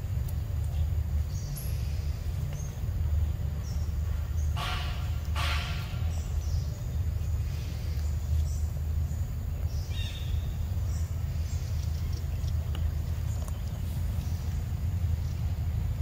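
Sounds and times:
low forest rumble: 0.0 - 16.0
faint bird chirps: 3.6 - 15.5.

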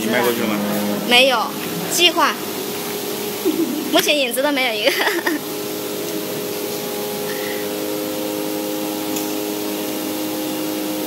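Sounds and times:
vacuum blower hissing: 0.0 - 11.0.

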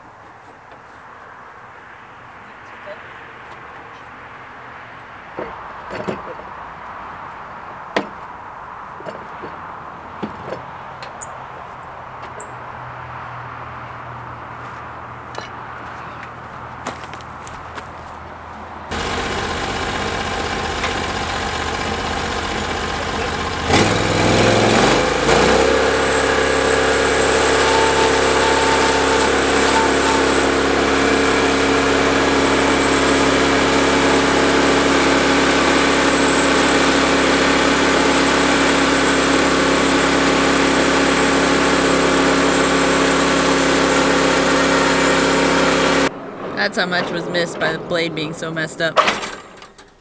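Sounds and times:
sawmill gas engine running: 18.9 - 46.1.

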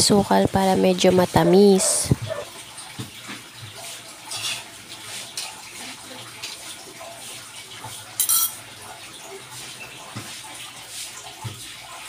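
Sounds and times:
vegetables sizzling in a wok: 4.2 - 6.3
metal spoon scraping a pan: 4.3 - 4.8.

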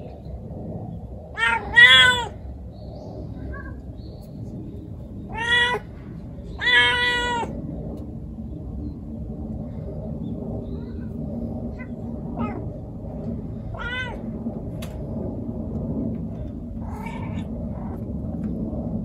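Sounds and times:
steady low hum: 0.0 - 19.0
cat yowling: 1.3 - 2.4, 5.3 - 5.9, 6.6 - 7.6, 11.8 - 12.7, 13.7 - 14.2, 16.8 - 17.5.

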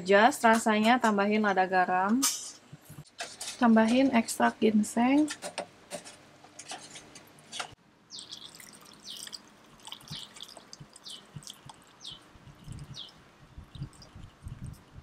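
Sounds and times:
broth pouring into glass bowl: 8.2 - 12.0, 13.6 - 14.7
short high drips: 8.2 - 14.9.

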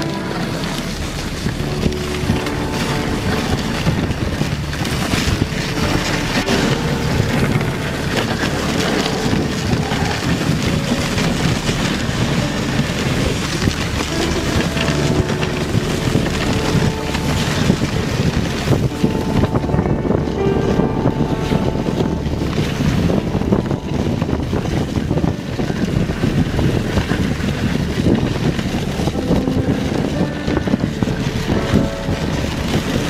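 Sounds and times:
sled runners sliding over snow: 0.0 - 33.0
wind rushing on microphone: 0.0 - 33.0.

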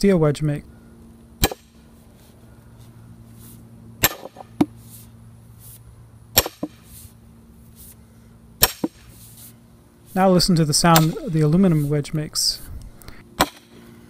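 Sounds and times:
maul striking steel wedge: 1.4 - 1.8, 4.0 - 4.8, 6.4 - 6.9, 8.6 - 9.1, 10.9 - 11.5, 13.4 - 13.7.

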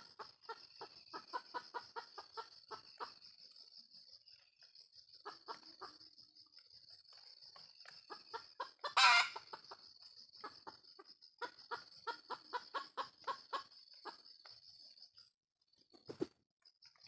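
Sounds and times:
junglefowl clucking: 0.0 - 3.2, 5.2 - 6.0, 8.0 - 9.8, 10.4 - 14.2.

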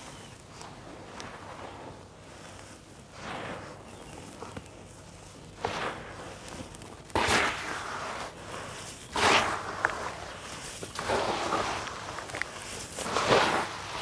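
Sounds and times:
gritty mix pouring into a tub: 7.1 - 14.0.

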